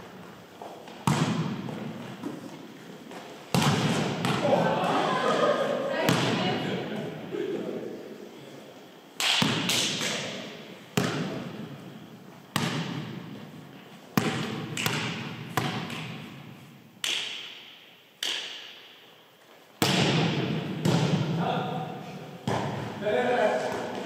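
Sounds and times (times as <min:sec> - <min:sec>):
volleyball bouncing on wooden floor: 0:00.9 - 0:02.4, 0:03.1 - 0:04.6, 0:06.0 - 0:06.6, 0:09.2 - 0:11.7, 0:12.5 - 0:13.4, 0:14.2 - 0:16.4, 0:19.8 - 0:21.4, 0:22.4 - 0:22.9.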